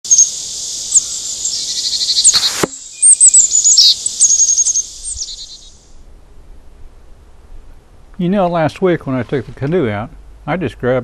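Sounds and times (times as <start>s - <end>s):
birds chirping in high trills: 0.0s - 6.0s
high insect buzz: 0.1s - 6.0s
short rushing noise: 2.3s - 2.8s.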